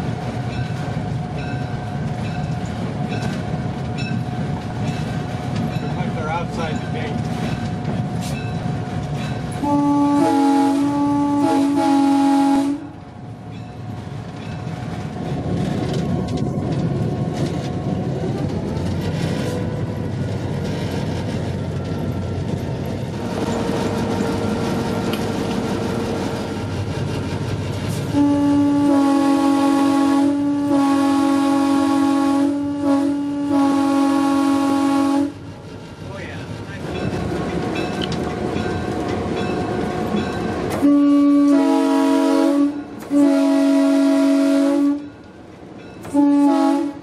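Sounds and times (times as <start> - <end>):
wheels ringing on rails: 0.0 - 9.8, 12.9 - 28.5, 36.2 - 41.6, 44.9 - 46.4
locomotive air horn blasts: 9.6 - 13.0, 28.1 - 35.4, 40.8 - 45.0, 46.1 - 47.0.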